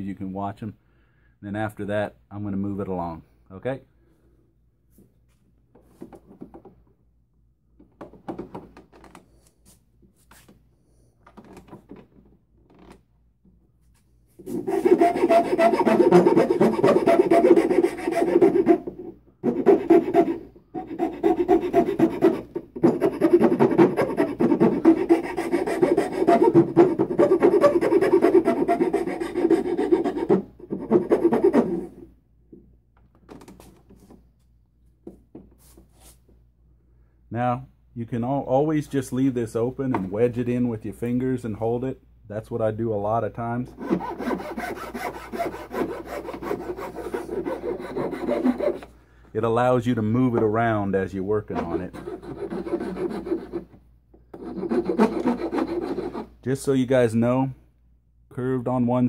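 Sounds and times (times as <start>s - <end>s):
hand file scraping wood: 14.4s - 32.1s, 43.6s - 48.9s, 51.4s - 56.3s.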